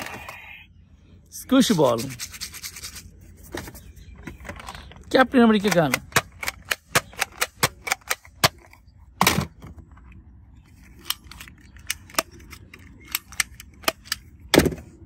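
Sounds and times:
plastic toy guns clicking: 0:05.5 - 0:08.8, 0:10.9 - 0:14.7.

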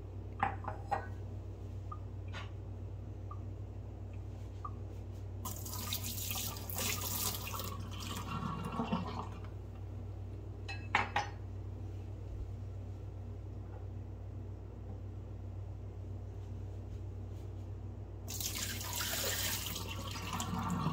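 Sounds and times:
water splashing into steel sink: 0:05.5 - 0:09.3, 0:18.3 - 0:20.9.

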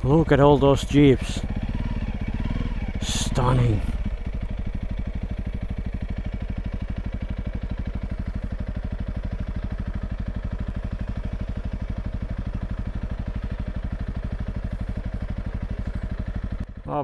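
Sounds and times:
motorcycle engine at low revs: 0:00.0 - 0:17.0.

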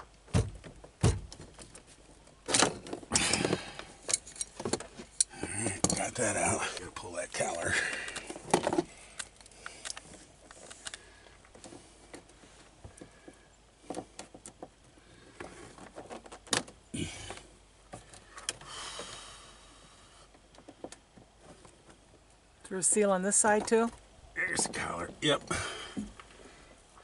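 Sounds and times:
sharp knocks: 0:00.3 - 0:01.4.

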